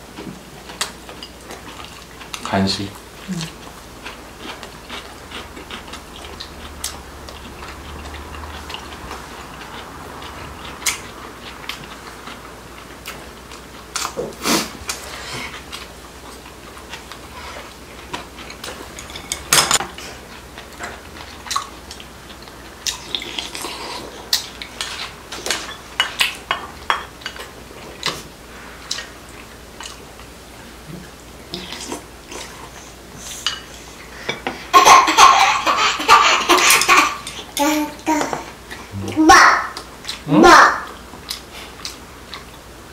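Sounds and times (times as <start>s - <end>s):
spoons clinking against bowls: 18.5s - 19.8s.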